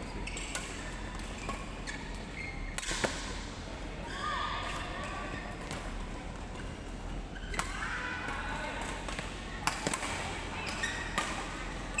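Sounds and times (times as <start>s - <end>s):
rackets striking shuttlecock: 2.7s - 3.4s, 8.8s - 11.6s.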